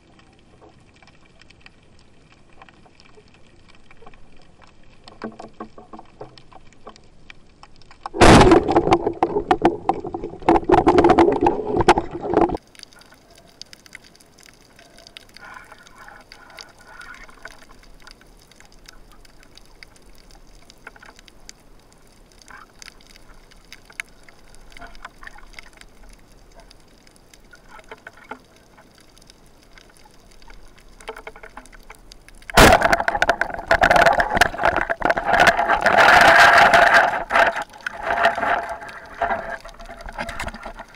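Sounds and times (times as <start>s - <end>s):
faint underwater clicks: 0.0s - 40.9s
water rushing and sloshing: 0.0s - 40.9s.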